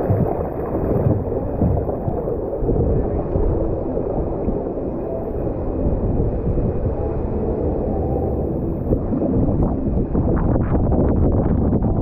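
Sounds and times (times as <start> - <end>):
wind buffeting microphone: 0.0 - 4.6, 8.6 - 12.0.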